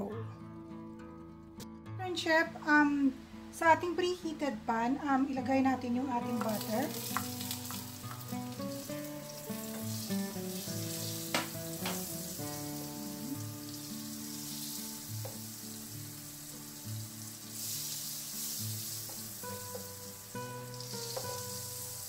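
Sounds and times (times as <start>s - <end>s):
soft instrumental music: 0.0s - 22.0s
butter sizzling in a pan: 6.2s - 22.0s
wooden spatula sharp taps: 6.4s - 8.4s, 11.3s - 12.2s, 21.0s - 21.4s.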